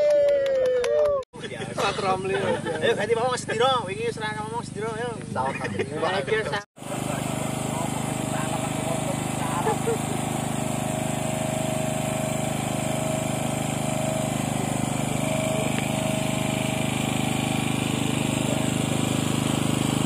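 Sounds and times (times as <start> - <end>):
small engine humming: 1.4 - 20.0.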